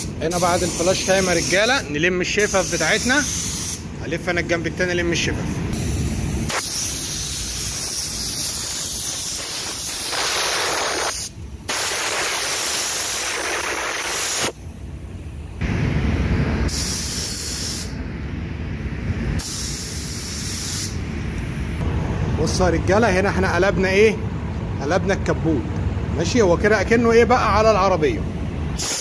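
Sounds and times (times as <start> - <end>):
paint spray gun hissing: 2.4 - 3.8, 5.7 - 14.6, 16.7 - 18.0, 19.4 - 21.6, 28.8 - 29.0.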